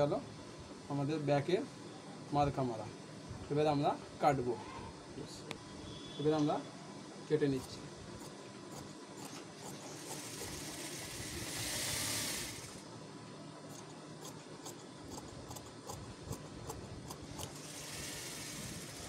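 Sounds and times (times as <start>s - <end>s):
rasping hiss of cutting cloth: 8.2s - 12.8s, 14.2s - 19.0s.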